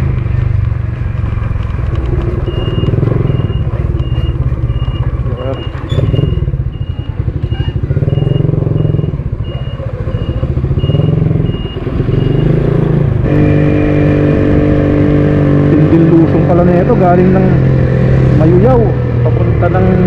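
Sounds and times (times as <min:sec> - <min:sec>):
motorcycle engine running: 0:00.0 - 0:20.0
high electronic beep: 0:02.4 - 0:12.7.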